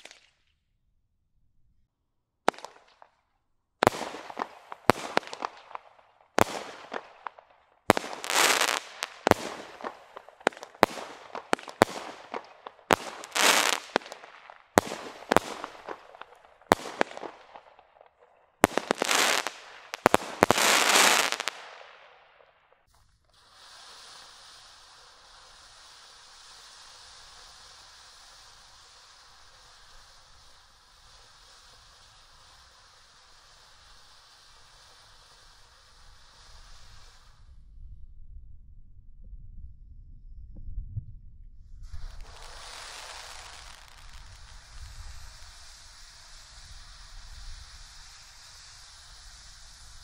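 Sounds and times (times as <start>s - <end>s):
crackling firework bursts: 0.0s - 0.4s, 2.5s - 37.7s, 41.7s - 50.0s
firework cake shots: 0.0s - 0.4s, 2.5s - 3.2s, 3.8s - 22.3s, 41.8s - 50.0s
firework fountain hissing: 3.8s - 37.6s, 41.8s - 50.0s.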